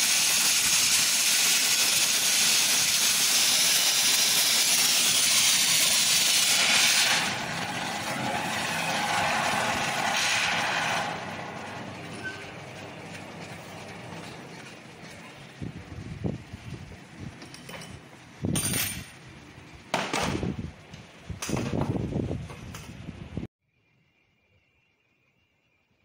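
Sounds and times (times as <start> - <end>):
torch flame hissing: 0.0 - 17.2.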